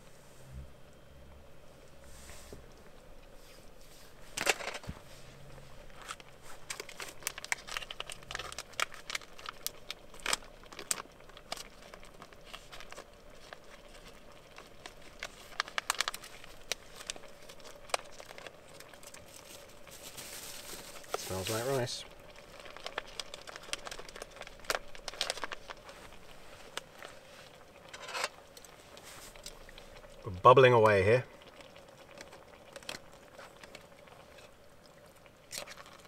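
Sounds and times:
plastic pouch crinkling: 5.8s - 30.2s, 31.4s - 34.5s, 35.4s - 36.0s.

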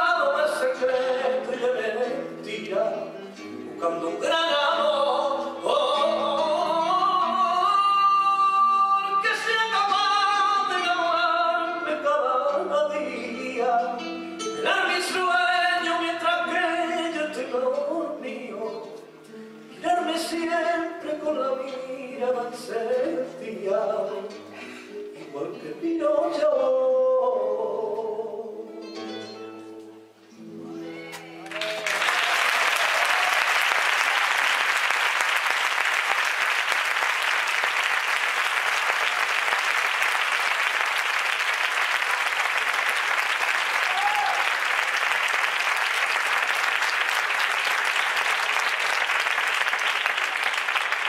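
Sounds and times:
man singing flamenco: 0.0s - 19.0s, 19.8s - 28.8s
flamenco guitar: 0.0s - 31.8s
audience applause: 31.4s - 51.0s.

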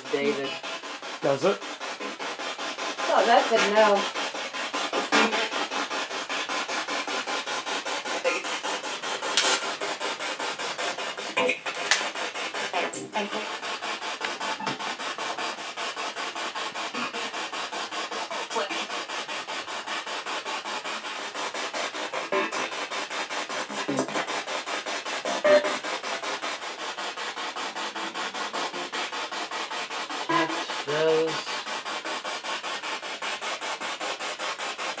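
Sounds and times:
pulsing radio static: 0.0s - 0.6s, 1.2s - 2.4s, 3.0s - 4.0s, 4.9s - 5.6s, 12.6s - 13.6s, 18.5s - 18.9s, 22.3s - 22.7s, 25.4s - 25.7s, 30.3s - 31.4s.

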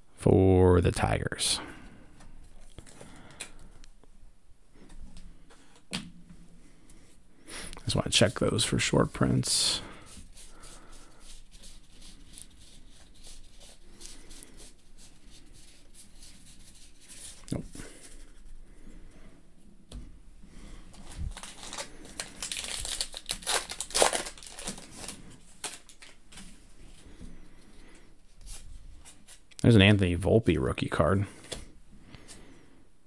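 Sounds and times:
card wrapper crinkling and tearing: 20.9s - 26.3s
trading cards shuffled by hand: 20.9s - 26.5s.

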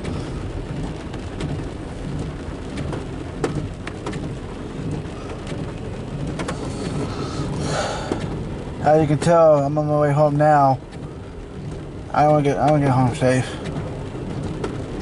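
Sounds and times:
car road noise rumble: 0.0s - 15.0s
rain drops ticking: 0.0s - 15.0s
windshield wipers: 0.0s - 15.0s.

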